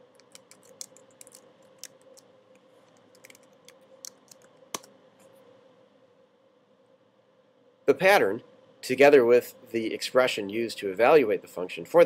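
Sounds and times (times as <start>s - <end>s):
computer keyboard typing: 0.1s - 2.2s, 3.0s - 4.9s.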